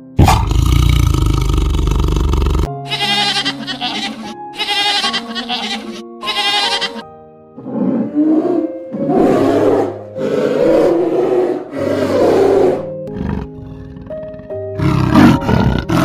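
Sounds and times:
large animal roaring: 0:00.2 - 0:02.7, 0:07.6 - 0:16.0
goats bleating: 0:02.9 - 0:07.0.

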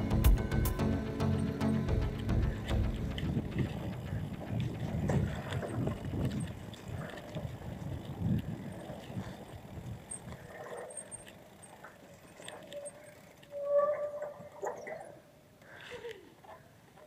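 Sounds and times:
mountain bike rattling on dirt trail: 0:02.2 - 0:14.9
wind buffeting microphone: 0:02.3 - 0:10.6.

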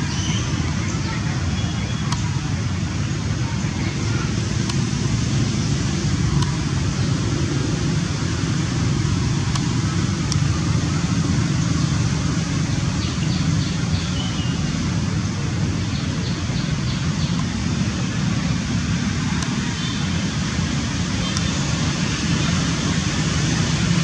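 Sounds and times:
low outdoor rumble: 0:00.0 - 0:24.0.

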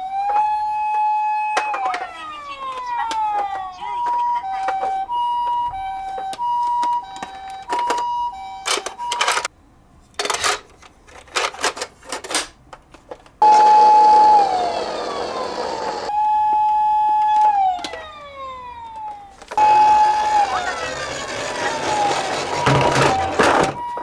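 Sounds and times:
steady siren tone sliding down: 0:00.0 - 0:08.6, 0:13.4 - 0:24.0
toy two-tone siren: 0:00.1 - 0:09.5, 0:13.4 - 0:24.0
plastic toy clicks and rattles: 0:07.4 - 0:09.5, 0:10.2 - 0:12.6.

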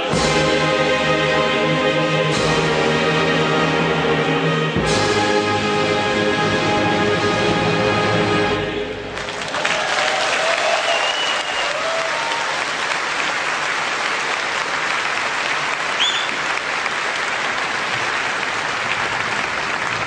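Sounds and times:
audience applauding: 0:09.1 - 0:20.0
rising whistle: 0:10.7 - 0:12.0, 0:16.0 - 0:16.4.

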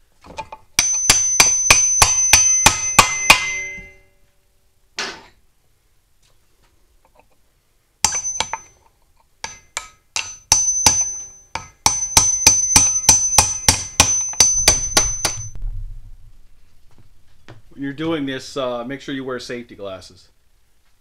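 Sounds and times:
steel disc ringing: 0:00.8 - 0:04.2, 0:08.0 - 0:08.8, 0:09.4 - 0:15.6.

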